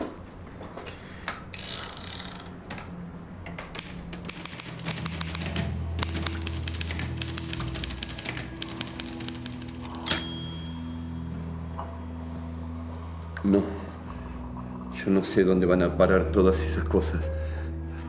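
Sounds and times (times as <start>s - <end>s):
low musical drone: 2.7s - 18.0s
typewriter keys clicking: 3.7s - 10.2s.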